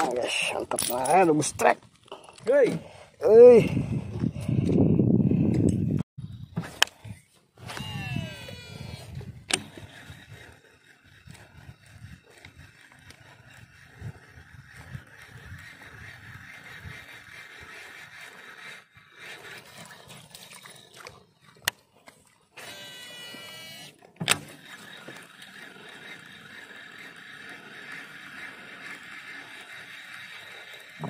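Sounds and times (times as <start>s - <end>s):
reel spool whirring: 6.2s - 31.0s.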